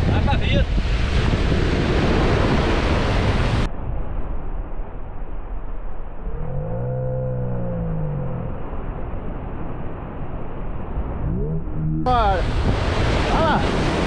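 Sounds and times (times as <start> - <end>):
ocean surf: 0.0 - 14.0
wind buffeting microphone: 0.0 - 14.0
dull steady rumble: 3.2 - 13.0
low pitched hum: 3.7 - 12.4.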